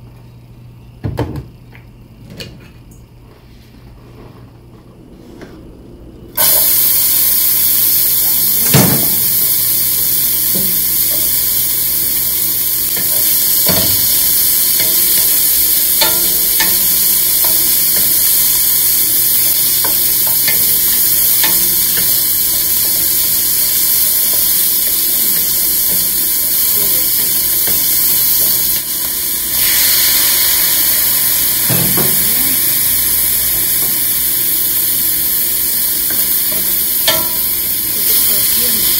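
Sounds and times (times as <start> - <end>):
onion sizzling in frying pan: 6.4 - 38.9.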